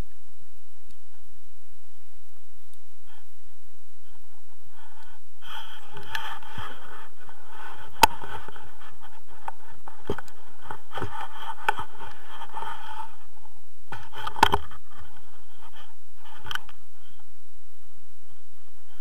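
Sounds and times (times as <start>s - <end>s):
scraping and rubbing on camera: 4.0s - 17.3s.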